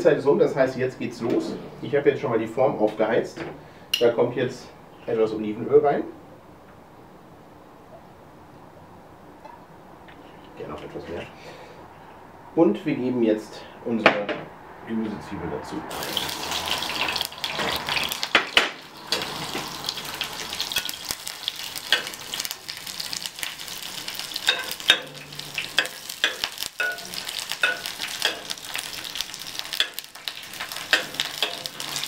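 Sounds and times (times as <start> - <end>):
onions sizzling in oil: 15.9 - 32.0.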